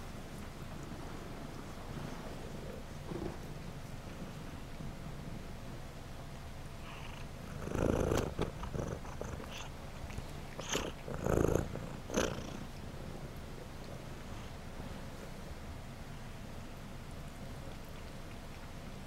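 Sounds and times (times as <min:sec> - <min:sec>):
cat purring: 0:00.7 - 0:05.5, 0:06.8 - 0:15.0.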